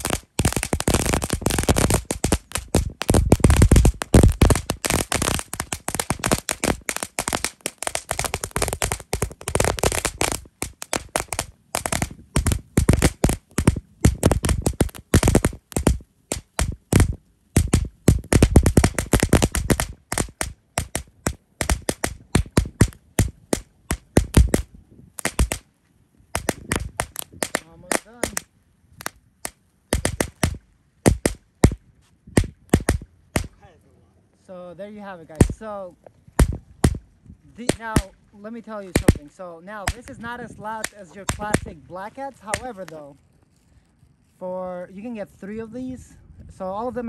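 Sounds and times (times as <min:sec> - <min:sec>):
firecrackers banging: 0:00.0 - 0:24.6, 0:26.4 - 0:29.1, 0:35.3 - 0:35.6, 0:36.4 - 0:38.2, 0:38.8 - 0:43.2.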